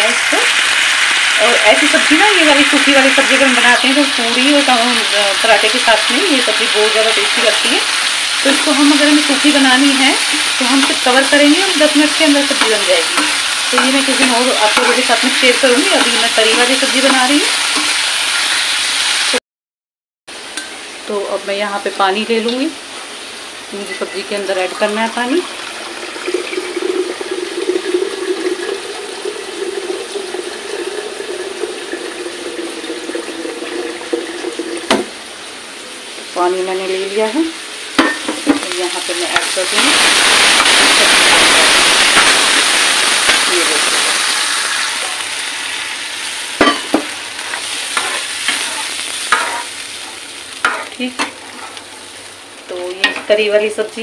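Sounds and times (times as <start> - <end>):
water sizzling in hot pan: 0.0 - 19.4, 20.3 - 54.0
ladle stirring and clicking on pan: 12.0 - 18.1, 46.6 - 51.9.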